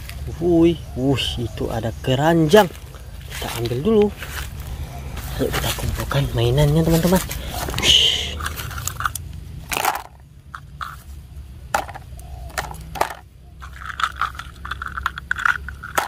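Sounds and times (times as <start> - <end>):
rustling in dry leaves: 2.3 - 9.0
plastic toy pieces clicking: 8.4 - 11.0, 11.8 - 16.0.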